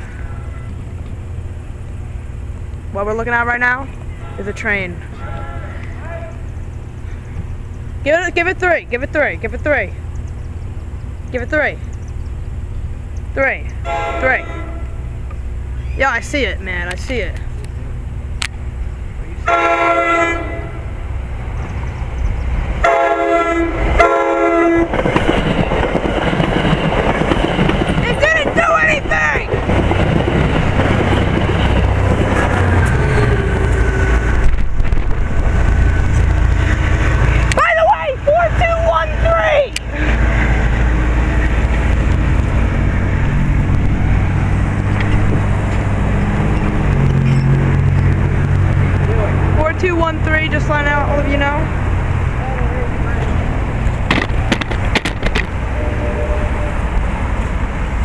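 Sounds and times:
diesel locomotive engine rumble: 0.0 - 58.0
train horn blasts: 13.8 - 15.2, 19.4 - 21.0, 22.8 - 25.0, 55.7 - 57.0
train wheels clattering on rail: 24.8 - 37.6, 53.2 - 55.7.

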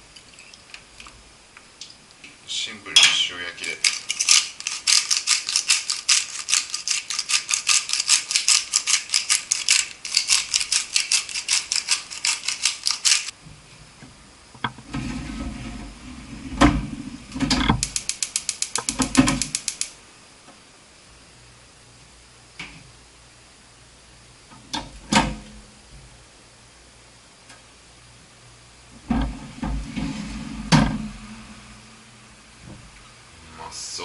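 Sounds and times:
salt grinder ratcheting clicks: 3.6 - 13.3, 17.8 - 20.0
gas burner rushing: 14.7 - 18.1, 28.9 - 33.2.

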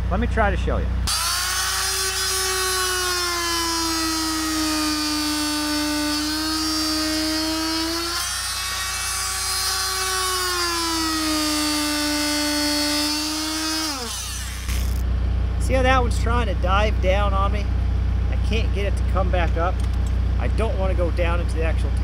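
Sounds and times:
multi-tool cutting rubber: 1.1 - 15.0.

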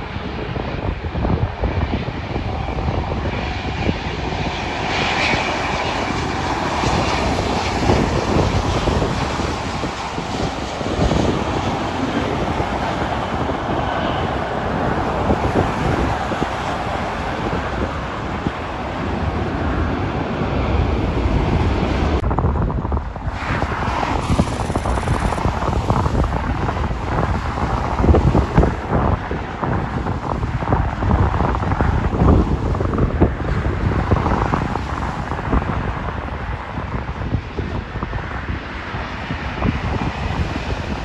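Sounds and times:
jet engine roar: 0.0 - 41.0
passing highway traffic: 0.0 - 41.0
wind buffeting microphone: 0.0 - 41.0.

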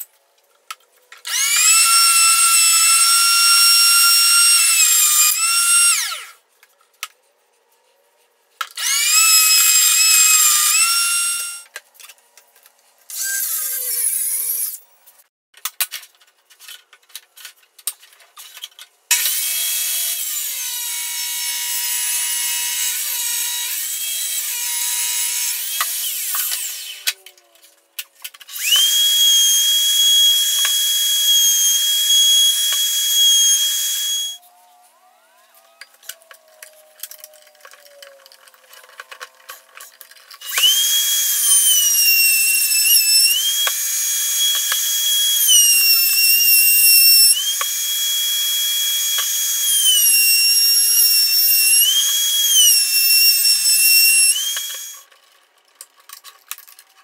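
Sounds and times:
router high whine: 1.3 - 6.3, 8.8 - 11.7, 28.5 - 36.1, 40.4 - 55.0
table saw cutting wood: 1.3 - 6.4, 8.8 - 11.7, 19.1 - 27.2, 28.5 - 34.4, 40.4 - 55.1.

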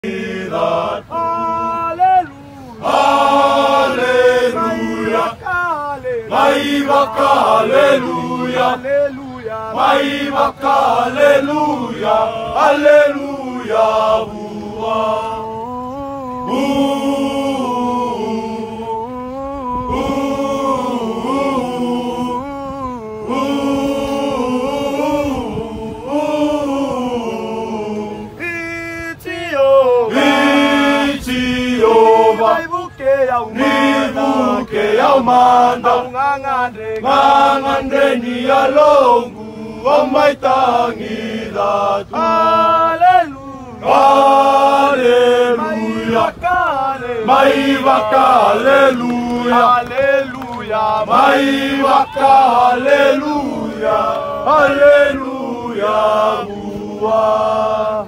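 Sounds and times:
men singing a hymn unaccompanied: 0.0 - 58.0.

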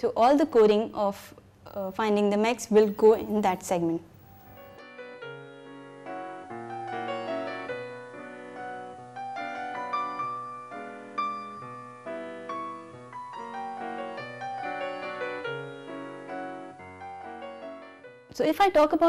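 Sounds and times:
piano music: 2.7 - 18.4.

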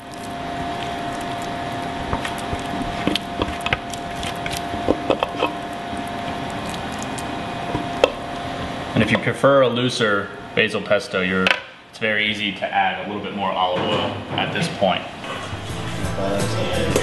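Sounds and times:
knocks and squishes of scraped pesto: 0.0 - 7.3
background hum with thin tone: 0.0 - 9.3.

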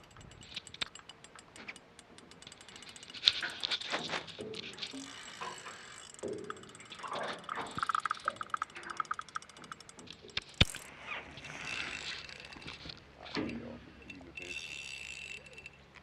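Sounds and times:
fishing reel ratchet ticking: 0.0 - 16.0.

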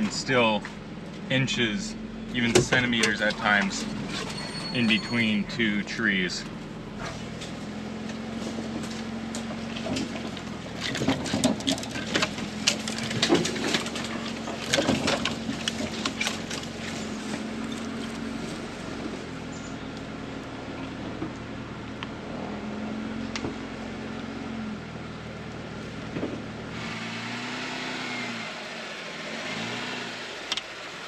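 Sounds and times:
engine running at low crawl: 0.0 - 31.0
branches scraping and snapping: 7.0 - 20.1.

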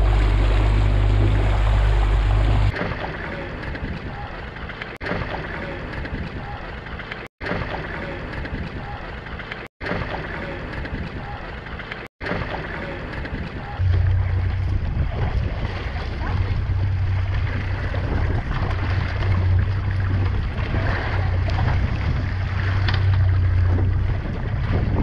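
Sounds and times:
boat engine drone: 0.0 - 3.6, 12.6 - 25.0
water rushing along hull: 0.0 - 25.0
wind buffeting microphone: 13.4 - 25.0.

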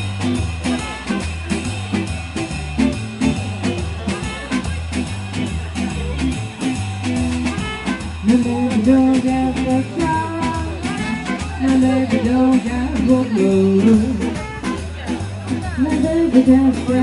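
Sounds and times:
trumpet: 0.0 - 1.8, 4.0 - 4.8, 7.4 - 8.5, 10.3 - 12.5
electric guitar: 0.0 - 17.0
upright double bass: 0.0 - 17.0.

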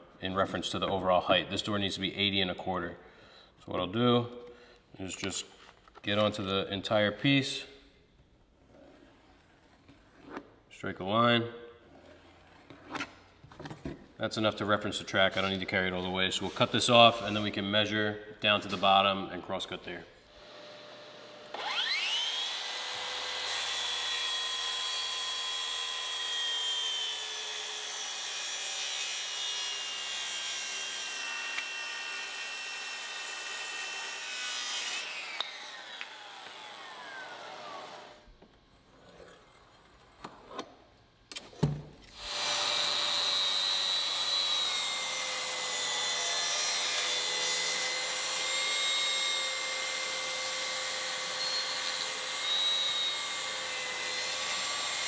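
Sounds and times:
circular saw cutting wood: 20.4 - 38.2, 42.1 - 55.0.

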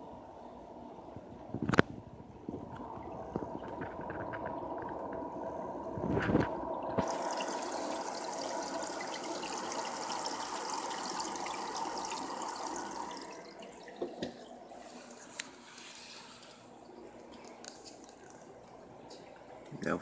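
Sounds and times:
water trickling and splashing: 2.6 - 5.6, 6.2 - 15.2.

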